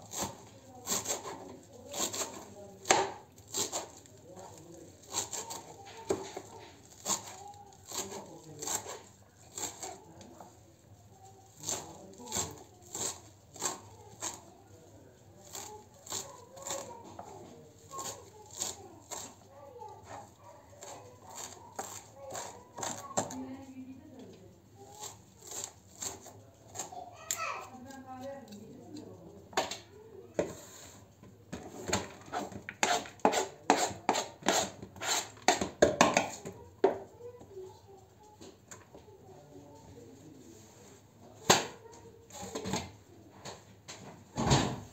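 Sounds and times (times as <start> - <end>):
knife chopping on plastic board: 0.0 - 4.0, 5.0 - 10.0, 11.6 - 14.4, 17.9 - 19.4, 20.0 - 23.4, 31.5 - 37.0
rough scrapes on cutting board: 30.4 - 31.1, 31.7 - 35.6.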